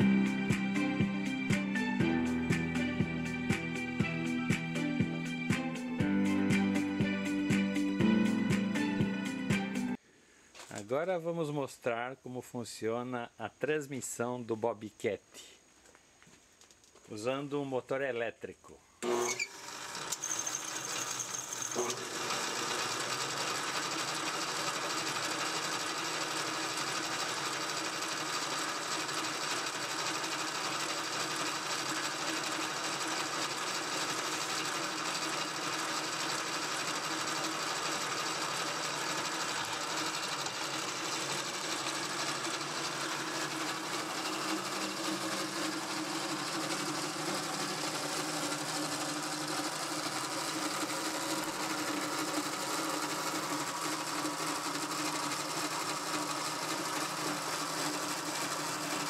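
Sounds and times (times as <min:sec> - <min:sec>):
electric motor and belt machinery: 0:19.0 - 0:59.0.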